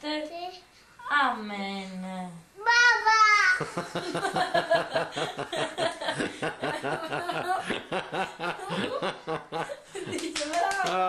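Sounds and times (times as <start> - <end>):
woman laughing: 3.7 - 11.0.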